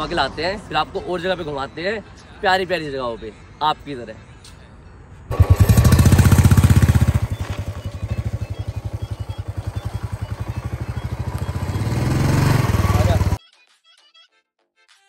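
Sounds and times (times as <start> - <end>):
motorcycle engine thumping: 5.3 - 13.4.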